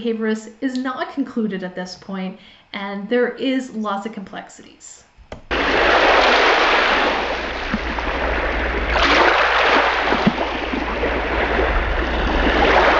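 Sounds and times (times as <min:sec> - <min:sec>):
ocean waves breaking: 0:05.5 - 0:12.9.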